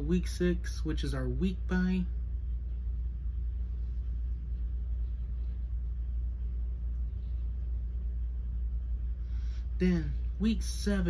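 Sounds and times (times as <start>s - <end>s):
low rumbling room hum: 0.0s - 11.0s.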